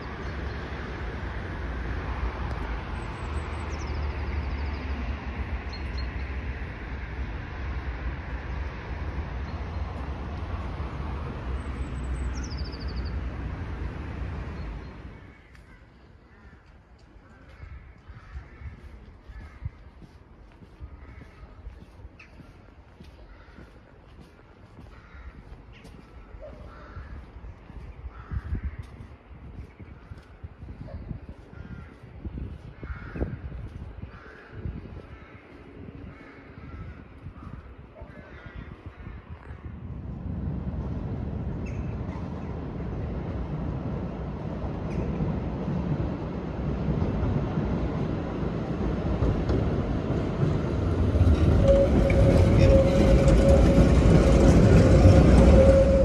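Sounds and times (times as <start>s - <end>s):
vehicle rumble: 0.0s - 56.0s
crows cawing: 15.2s - 20.2s, 20.8s - 21.7s, 23.1s - 23.9s, 24.8s - 27.4s, 28.1s - 29.0s, 31.5s - 32.0s, 32.8s - 33.4s, 34.1s - 39.6s
low rumbling noise: 38.9s - 56.0s.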